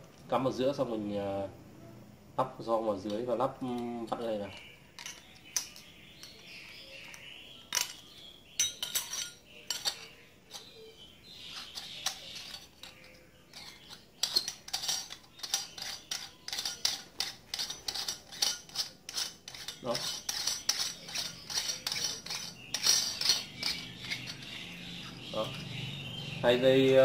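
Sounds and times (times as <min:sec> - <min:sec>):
metal clinks and clicks: 0:05.0 - 0:06.5, 0:11.7 - 0:24.6.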